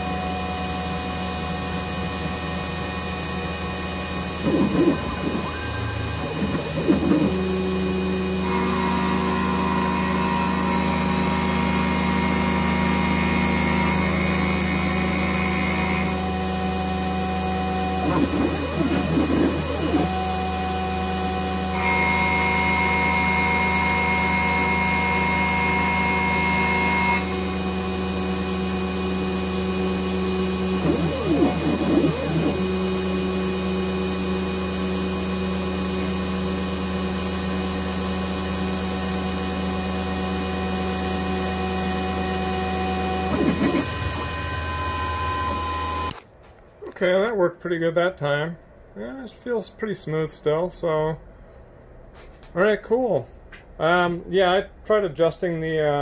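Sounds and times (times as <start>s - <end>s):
stepper motors whining: 0.0s - 46.2s
milling spindle humming: 0.1s - 46.2s.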